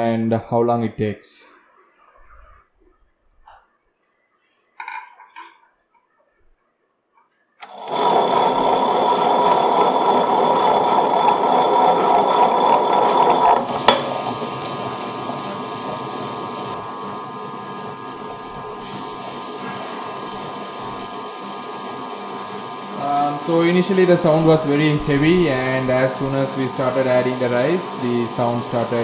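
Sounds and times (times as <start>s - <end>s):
wet grinder running: 7.6s - 29.0s.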